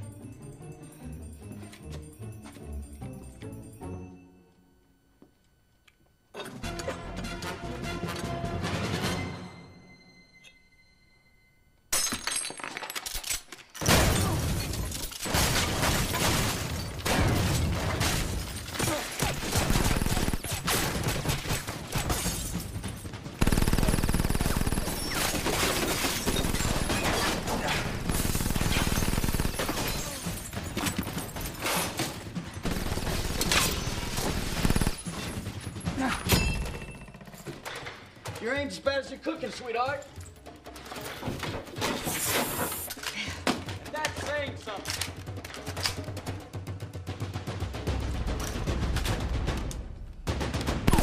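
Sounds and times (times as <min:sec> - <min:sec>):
glass and furnishings shattering: 0:11.9 - 0:23.3, 0:24.9 - 0:37.8
rapid gunfire: 0:15.3 - 0:31.5, 0:32.6 - 0:36.7, 0:50.2 - 0:51.0.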